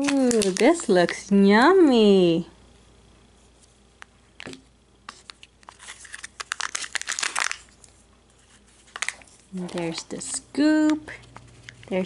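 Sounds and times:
plastic wrapping crinkling and tearing: 0.0 - 1.2, 5.1 - 10.3.

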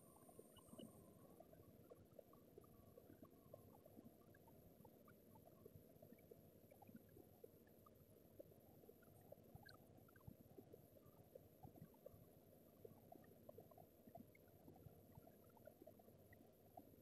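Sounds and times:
tiny ticks and crackles: 0.0 - 17.0.

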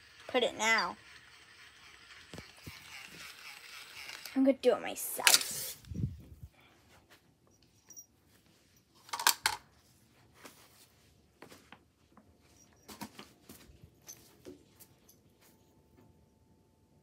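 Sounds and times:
toys and boxes clattering: 9.0 - 9.6.

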